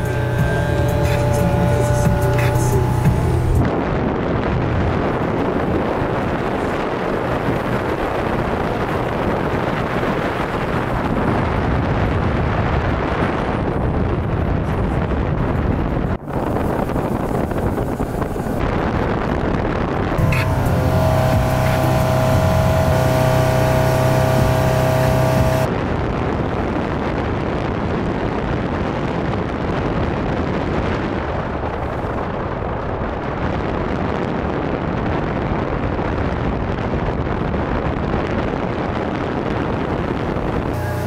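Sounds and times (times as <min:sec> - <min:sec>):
motorboat engine humming: 0:00.0 - 0:12.2, 0:15.8 - 0:25.8, 0:38.6 - 0:41.0
rush of wind and water: 0:00.0 - 0:41.0.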